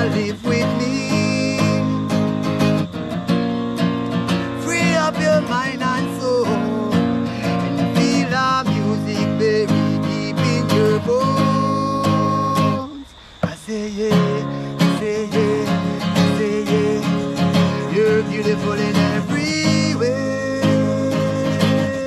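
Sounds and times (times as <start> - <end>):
guitar accompaniment: 0.0 - 22.0
person singing long notes: 4.5 - 22.0.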